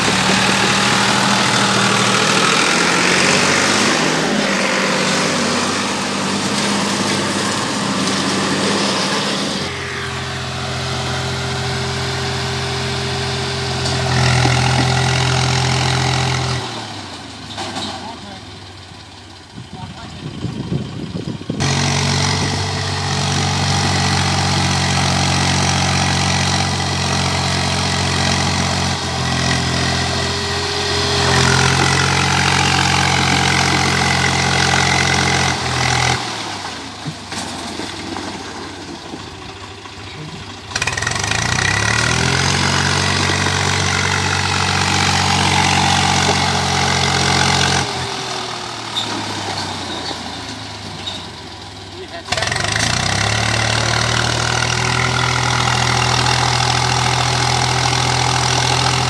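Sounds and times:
tractor diesel engine under load: 0:00.0 - 0:59.0.

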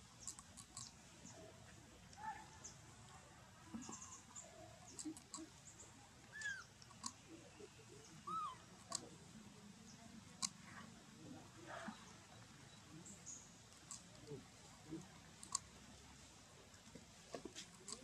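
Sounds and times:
baby monkey squeaking: 0:06.3 - 0:06.7, 0:08.2 - 0:08.6.

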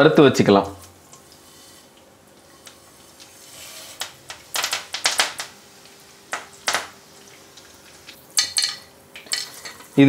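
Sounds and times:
faint oil sizzle: 0:00.6 - 0:10.0
seeds spluttering in hot oil: 0:00.9 - 0:10.0
sharp pops and crackles: 0:03.9 - 0:07.0.

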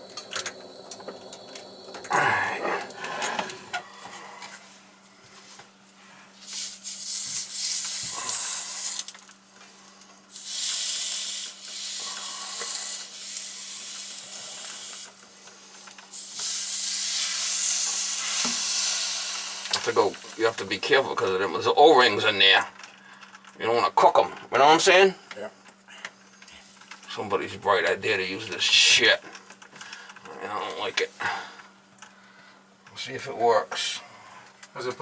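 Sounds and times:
wet rag hissing on hot pipe: 0:06.4 - 0:09.2, 0:10.3 - 0:20.5.

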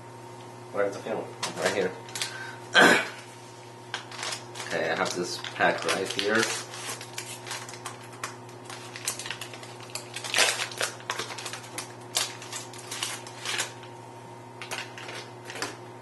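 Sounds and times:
foil wrapper crinkling: 0:03.9 - 0:13.9, 0:14.6 - 0:15.8.

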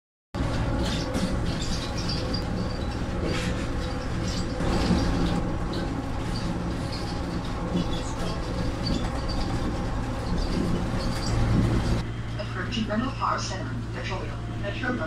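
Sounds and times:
train car rumbling in motion: 0:00.4 - 0:15.0.

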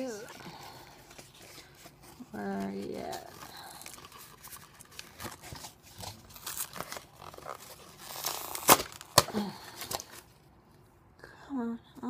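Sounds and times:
paper rustling and crinkling: 0:00.0 - 0:10.4
paper snapping: 0:08.1 - 0:10.1.

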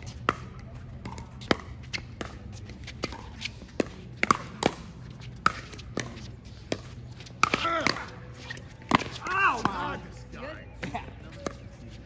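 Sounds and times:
pickleball paddles striking ball: 0:03.0 - 0:08.1.

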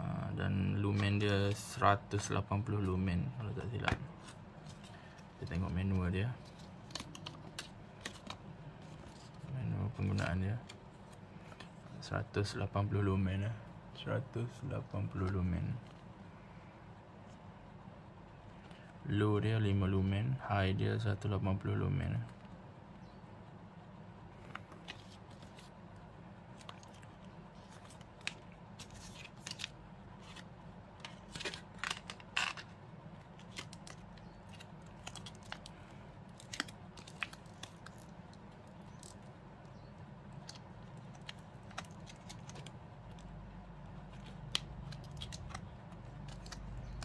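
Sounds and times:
packaging crinkling and rustling: 0:26.5 - 0:39.3, 0:40.4 - 0:43.3, 0:44.0 - 0:47.0.

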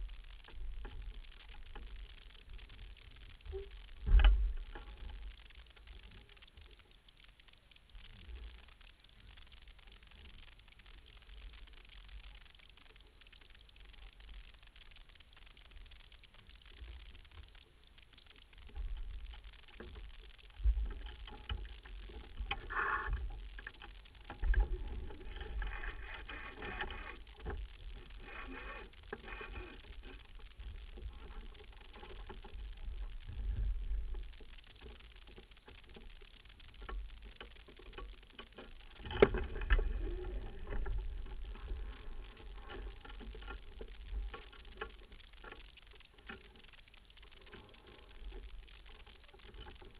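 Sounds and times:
water washing along hull: 0:18.7 - 0:49.9.

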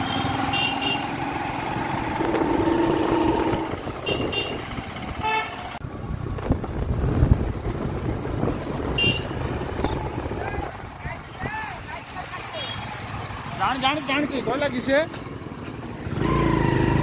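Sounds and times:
vehicle horns tooting: 0:00.0 - 0:01.2, 0:02.8 - 0:05.8, 0:08.9 - 0:10.0, 0:12.4 - 0:13.0
motorcycle engine and road noise: 0:00.0 - 0:17.0
low rumble with thumps: 0:05.8 - 0:10.9.

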